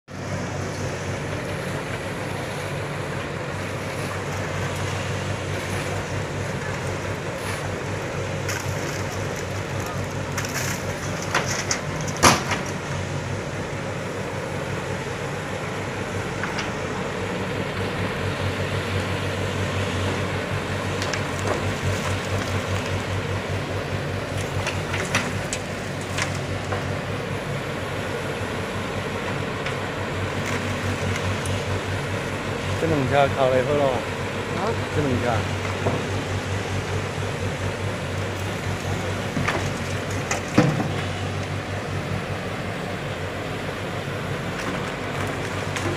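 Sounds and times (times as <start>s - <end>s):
excavator diesel engine humming: 0.1s - 45.9s
soil dropping into truck bed: 8.3s - 13.0s, 38.5s - 41.4s.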